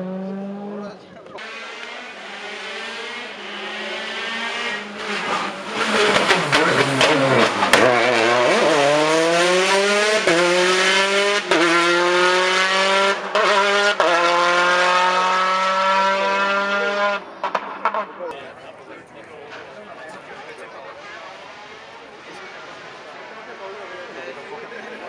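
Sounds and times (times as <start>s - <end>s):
rally car engine revving: 0.0s - 18.3s
exhaust pops: 5.1s - 8.9s.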